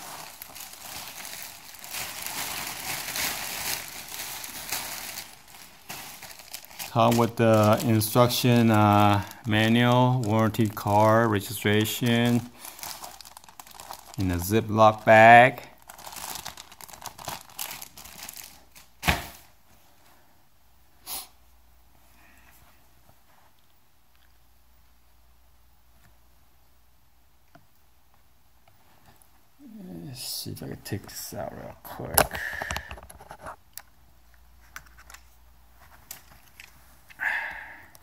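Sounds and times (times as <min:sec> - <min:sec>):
plastic bag rustling: 0:00.0 - 0:19.5
bag thump: 0:19.0 - 0:19.4.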